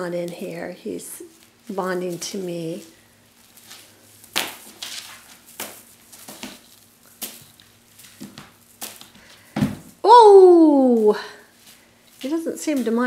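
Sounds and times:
feather wand toy swishing: 10.8 - 13.0.

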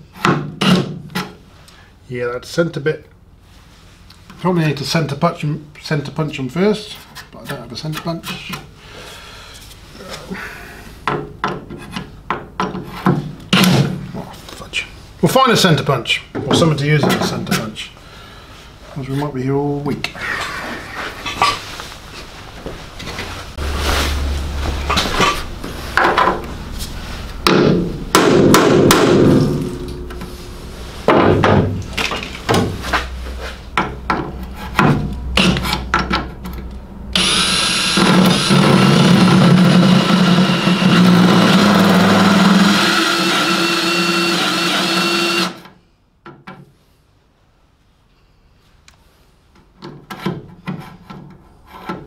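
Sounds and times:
sharp knocks: 27.4 - 30.2
drill whining and grinding metal: 37.2 - 45.6.

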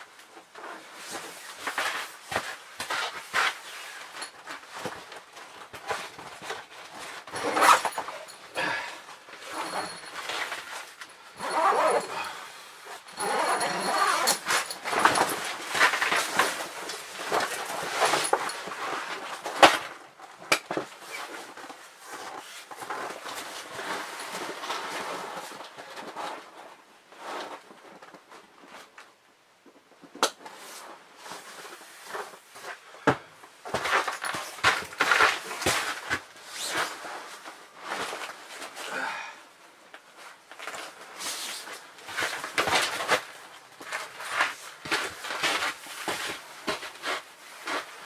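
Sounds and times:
canvas tent flap rustling: 0.0 - 12.3, 13.2 - 29.0, 33.7 - 38.8
footsteps in boots: 41.7 - 48.0.

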